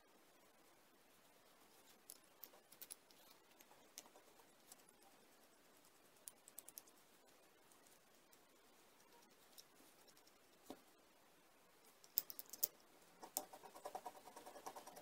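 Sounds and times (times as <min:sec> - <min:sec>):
metal parts clicking: 0:12.0 - 0:12.8.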